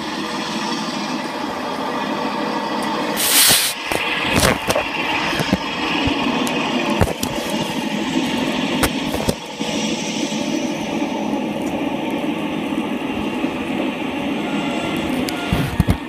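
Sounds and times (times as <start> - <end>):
diesel locomotive engine running: 0.0 - 16.0
burst of hiss: 3.2 - 3.9.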